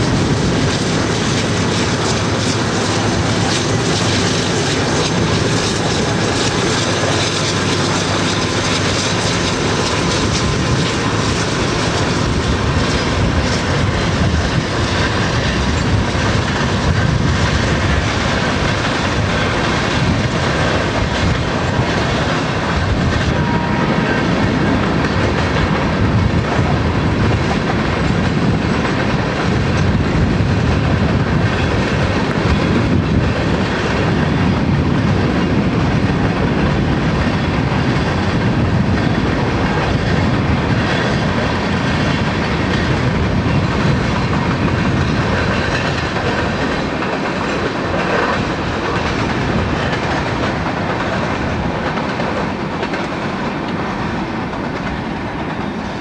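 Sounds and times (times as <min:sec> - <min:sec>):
diesel locomotives passing: 0:00.0 - 0:56.0
train wheels on rails: 0:00.0 - 0:56.0.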